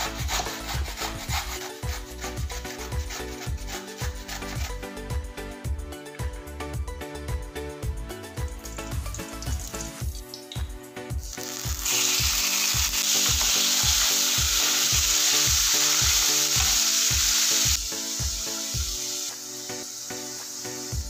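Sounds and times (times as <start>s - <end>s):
background music with steady beat: 0.0s - 21.0s
chicken sizzling in frying pan: 11.2s - 21.0s.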